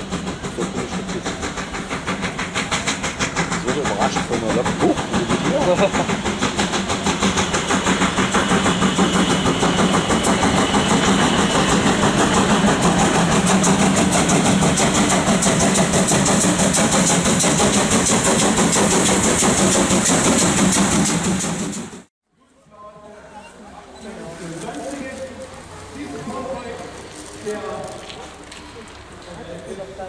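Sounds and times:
steam hissing: 0.0s - 22.1s
steam locomotive chuffing: 0.0s - 22.1s, 23.3s - 30.0s.

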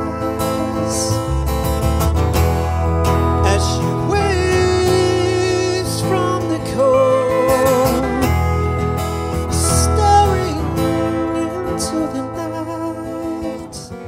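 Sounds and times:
double bass: 0.0s - 14.0s
pedal steel guitar: 0.0s - 14.0s
strummed acoustic guitar: 0.0s - 14.0s.

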